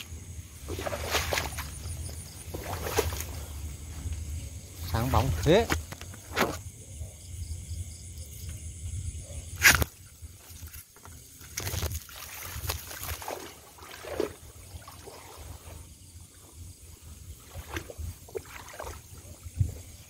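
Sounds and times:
water sloshing and splashing: 0.0s - 6.6s, 9.6s - 20.0s.

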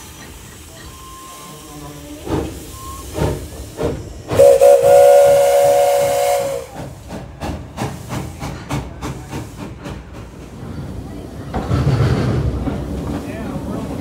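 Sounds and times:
steam locomotive chuffing: 0.0s - 14.0s
steam whistle blast: 4.4s - 6.9s.

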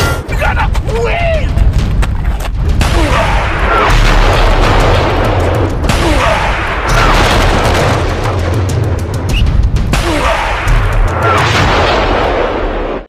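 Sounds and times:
low rumbling bass: 0.7s - 10.2s
blast or gunfire bursts: 2.7s - 13.0s.

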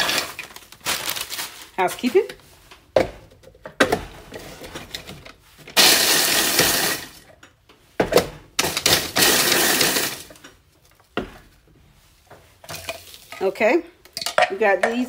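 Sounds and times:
electric food chopper whirring: 5.8s - 7.1s, 8.9s - 10.2s.

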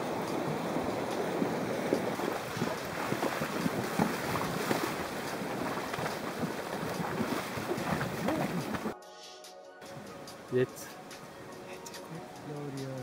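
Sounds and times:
horse hooves splashing in water: 0.0s - 9.0s.

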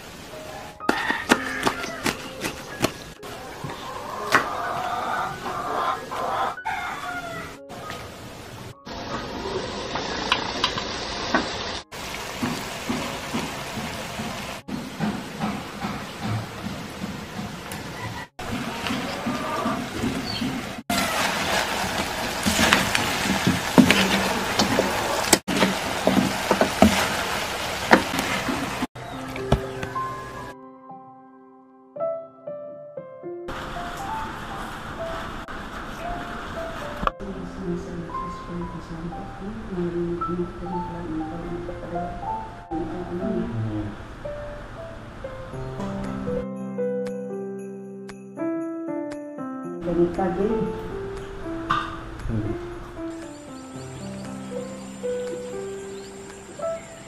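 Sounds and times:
chickens clucking: 0.5s - 8.1s, 15.0s - 20.8s
food sizzling in a pan: 8.9s - 14.6s, 20.9s - 28.9s.

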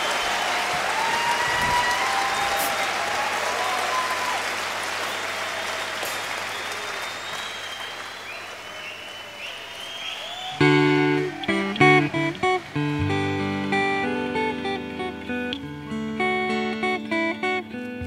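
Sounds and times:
audience applause: 0.0s - 15.3s
acoustic guitar strumming chords: 10.6s - 18.0s.

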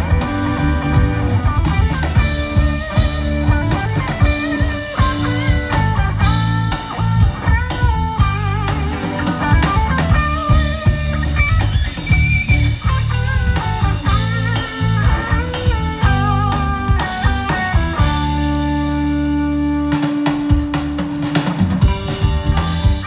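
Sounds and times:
drum kit: 0.0s - 23.0s
electric guitar lead lines: 0.0s - 23.0s
heavy low end: 0.0s - 23.0s.

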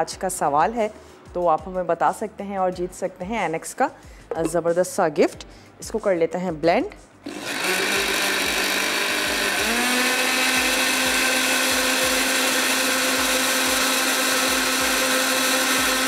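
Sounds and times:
blender motor whine: 7.2s - 16.0s.

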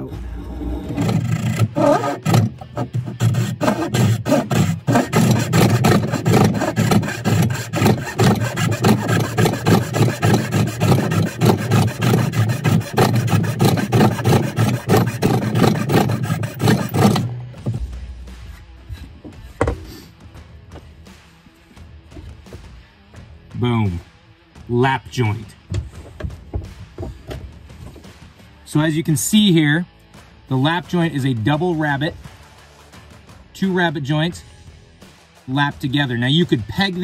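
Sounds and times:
hand saw cutting wood: 0.0s - 17.8s.

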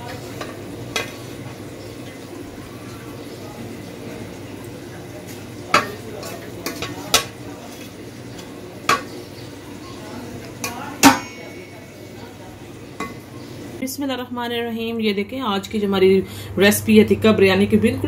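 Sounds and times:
utensil clinking on dish: 5.7s - 9.3s, 10.4s - 13.3s.

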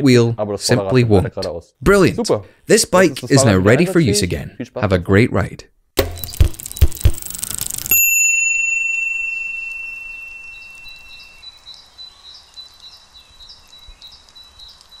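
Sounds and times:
bright chime ringing: 7.4s - 11.6s
faint high chirps: 8.3s - 15.0s.

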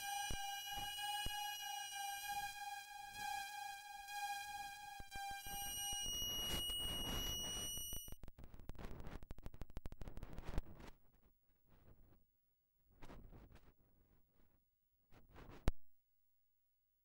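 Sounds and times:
buzzy electronic toy tone: 0.0s - 8.2s.

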